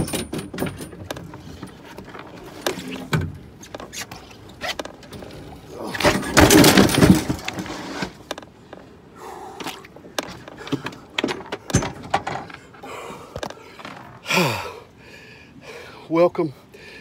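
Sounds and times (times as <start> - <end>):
scuffle and clatter: 5.9 - 8.5.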